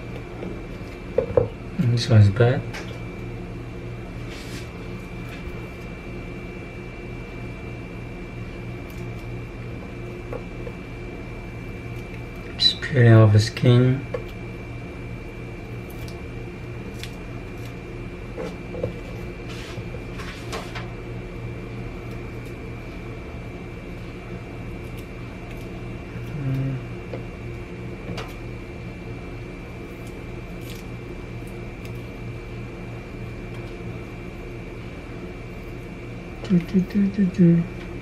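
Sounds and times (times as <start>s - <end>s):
electrical hum: 0.0s - 38.0s
garlic skins crackling: 15.4s - 19.8s, 23.8s - 26.8s, 29.7s - 32.5s.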